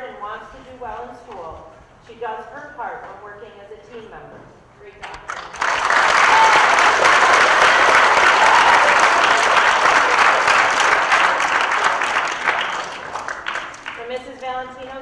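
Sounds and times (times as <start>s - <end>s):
audience applause: 5.3s - 14.0s.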